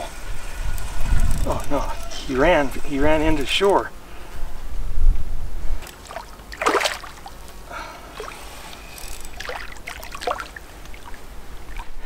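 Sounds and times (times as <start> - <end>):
fish splashing in water: 5.8 - 12.0.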